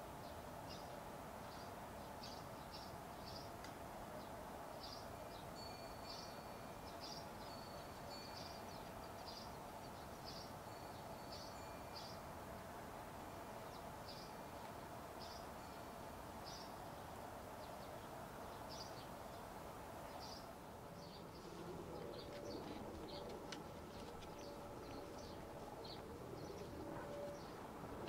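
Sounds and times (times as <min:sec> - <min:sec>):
steady background hum: 0:17.2 - 0:28.0.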